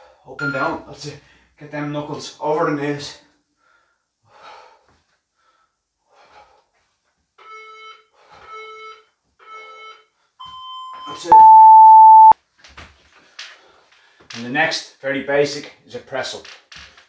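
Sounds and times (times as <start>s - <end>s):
faint breathing: 3.6s - 6.7s
electronic timer beeps: 7.5s - 12.4s.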